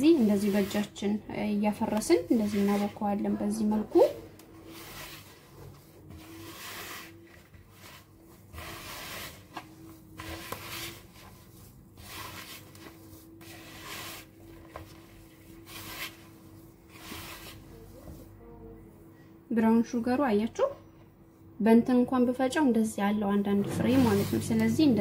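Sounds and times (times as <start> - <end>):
hands kneading dough in bowl: 0.0 - 18.4, 23.6 - 25.0.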